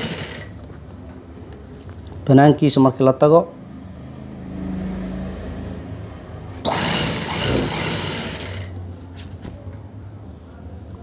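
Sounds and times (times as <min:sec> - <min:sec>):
sewing machine stitching: 0:00.0 - 0:00.5, 0:06.7 - 0:08.7.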